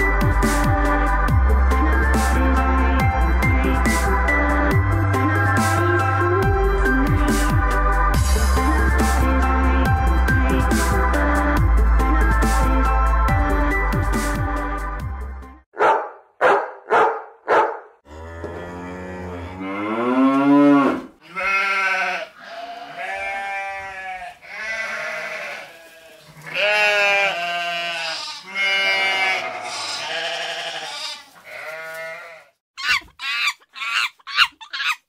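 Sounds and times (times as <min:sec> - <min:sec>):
farm animal calls: 0:20.7 - 0:35.0.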